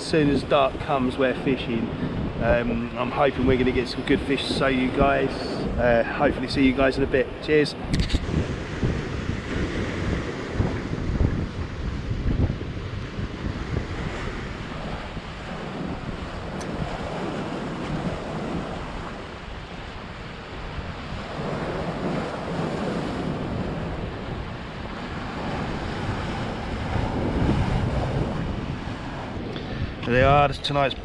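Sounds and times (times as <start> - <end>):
wind buffeting microphone: 0.0 - 31.0
sea waves breaking on rocks: 8.2 - 30.2.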